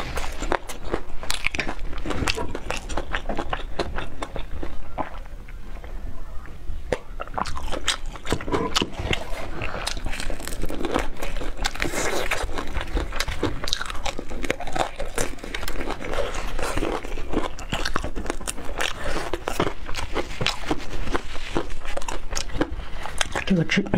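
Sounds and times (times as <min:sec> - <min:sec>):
crunchy chewing: 0:00.0 - 0:23.6
wet mouth sounds: 0:06.9 - 0:23.5.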